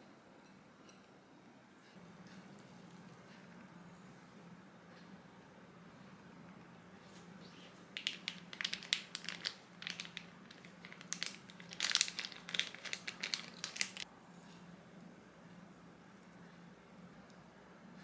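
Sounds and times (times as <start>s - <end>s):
plastic pouch crinkling: 7.9s - 14.0s.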